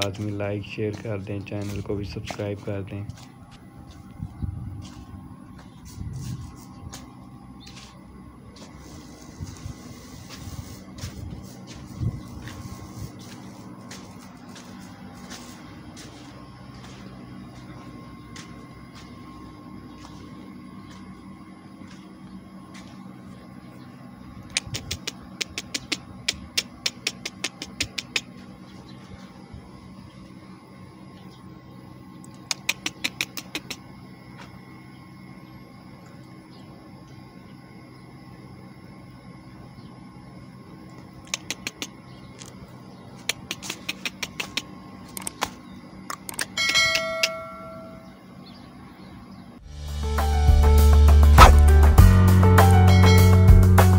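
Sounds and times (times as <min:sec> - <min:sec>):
steady low hum: 0:00.0 - 0:53.9
sharp clicks: 0:24.5 - 0:28.3, 0:32.2 - 0:33.8, 0:43.2 - 0:47.3.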